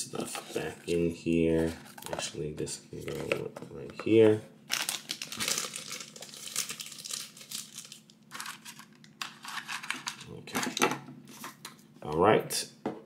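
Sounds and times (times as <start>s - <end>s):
packaging rustling and crinkling: 4.7s - 10.8s.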